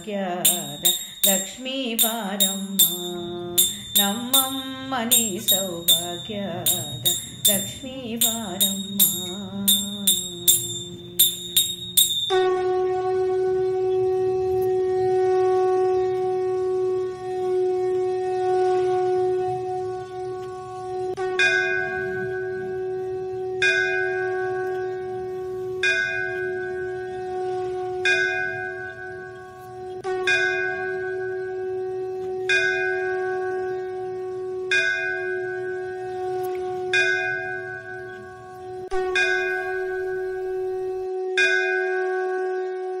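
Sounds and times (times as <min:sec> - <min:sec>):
bell-like tone ringing: 0:00.0 - 0:12.8, 0:34.7 - 0:42.7
held drone note: 0:00.0 - 0:43.0.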